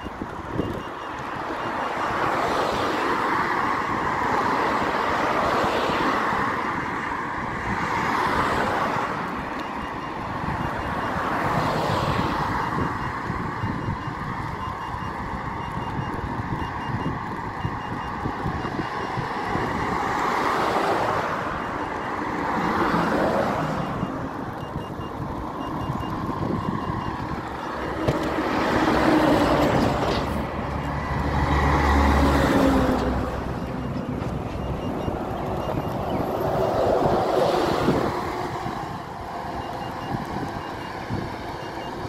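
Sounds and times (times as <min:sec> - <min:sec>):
road traffic passing: 0:00.0 - 0:42.0
wind on microphone: 0:03.0 - 0:31.8, 0:32.4 - 0:42.0.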